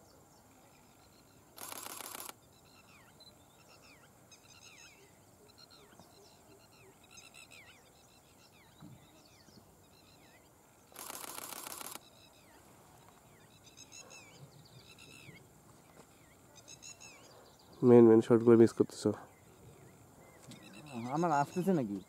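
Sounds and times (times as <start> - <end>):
birds chirping faintly: 0.0 - 22.0
camera shutter burst: 1.6 - 2.4, 10.9 - 12.0.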